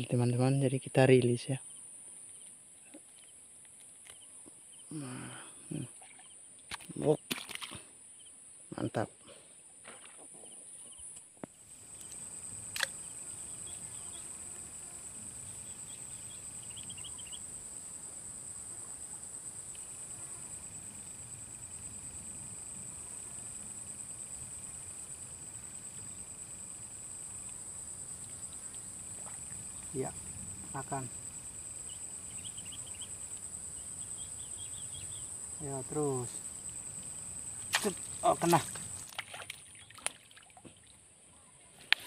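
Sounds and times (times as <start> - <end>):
insects chirring: 0.0 - 9.1, 9.8 - 41.2.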